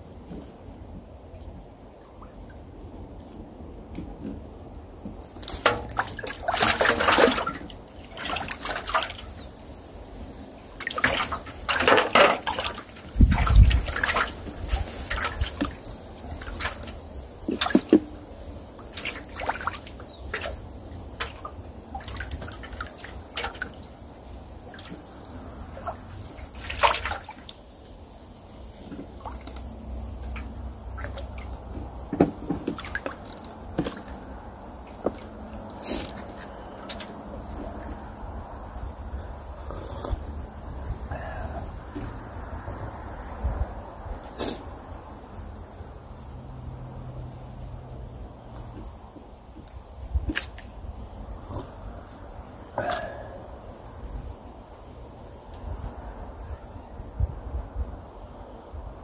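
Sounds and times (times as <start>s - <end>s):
water splashing and dripping: 5.0s - 39.3s, 40.6s - 56.0s
fishing gear knocking and rustling: 31.6s - 34.2s.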